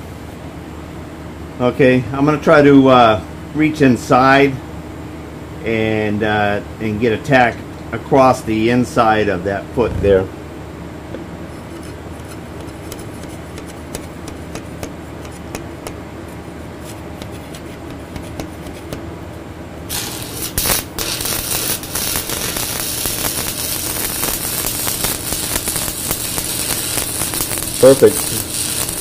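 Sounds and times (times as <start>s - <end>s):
low steady hum: 0.0s - 29.0s
welding arc crackling and sizzling: 11.8s - 15.9s, 19.9s - 29.0s.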